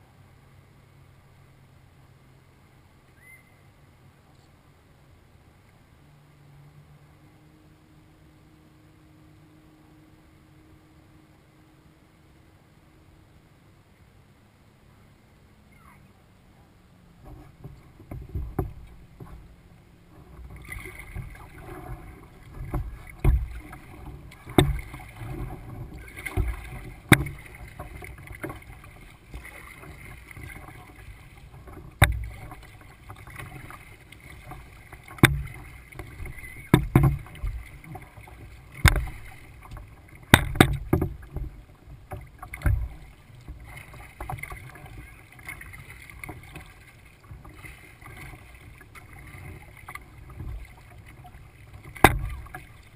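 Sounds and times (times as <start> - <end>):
water washing along hull: 5.0 - 52.9
paddle strokes splashing: 17.0 - 52.9
taps and thumps on kayak: 17.2 - 52.9.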